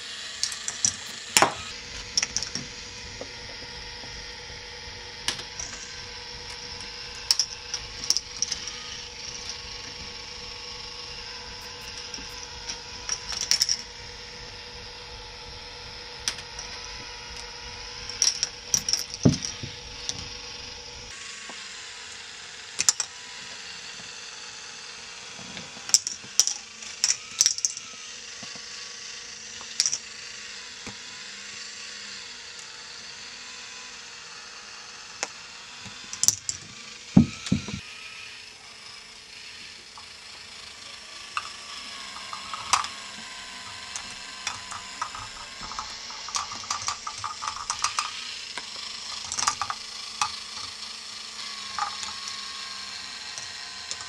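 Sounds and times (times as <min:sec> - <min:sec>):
whir of turning wheel: 0:00.0 - 0:54.0
plastic balls clicking and rattling: 0:00.3 - 0:04.1, 0:05.2 - 0:14.0, 0:16.2 - 0:20.5, 0:22.8 - 0:23.1, 0:25.8 - 0:28.6, 0:29.6 - 0:30.1, 0:35.2 - 0:37.8, 0:40.8 - 0:54.0.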